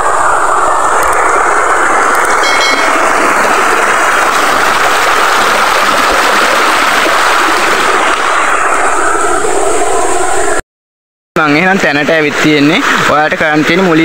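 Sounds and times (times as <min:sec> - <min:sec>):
running water rushing: 0:00.0 - 0:10.6.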